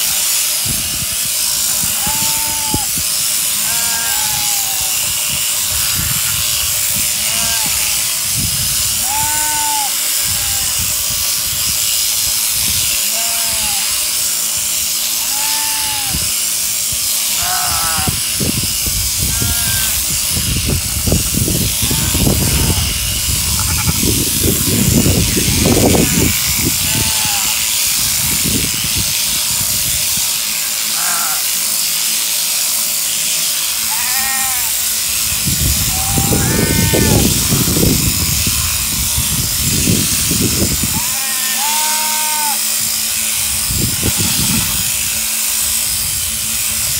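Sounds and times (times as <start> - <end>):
shearing handpiece hissing: 0.0 - 46.9
sheep bleating: 1.7 - 5.0, 7.1 - 8.0, 8.9 - 10.8, 13.0 - 14.0, 15.2 - 16.2, 17.3 - 18.2, 19.2 - 20.0, 21.7 - 24.2, 25.2 - 27.8, 30.8 - 31.5, 33.7 - 34.8, 35.9 - 37.7, 40.8 - 42.8.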